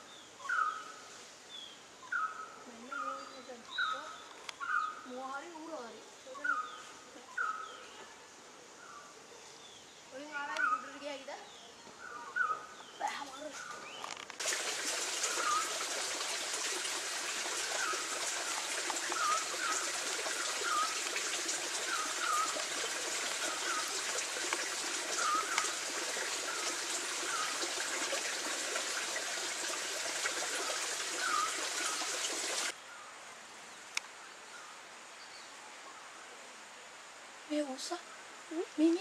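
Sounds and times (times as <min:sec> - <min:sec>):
stream water rushing: 0:14.4 - 0:32.8.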